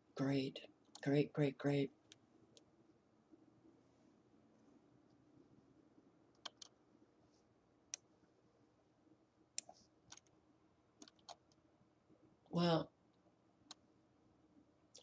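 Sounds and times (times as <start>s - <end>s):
computer mouse clicks: 6.3s - 6.8s, 9.6s - 10.4s, 11.0s - 11.6s.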